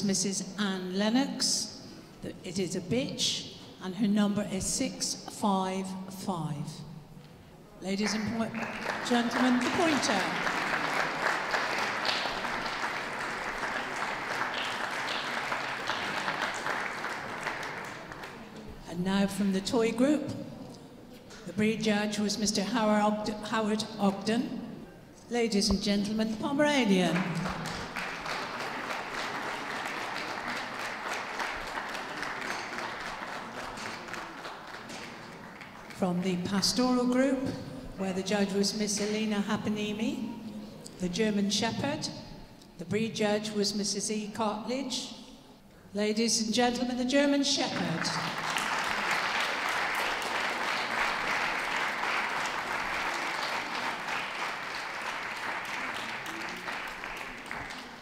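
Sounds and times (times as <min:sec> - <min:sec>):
audience applauding: 0:08.0 - 0:18.5, 0:27.2 - 0:36.0, 0:48.1 - 0:58.0.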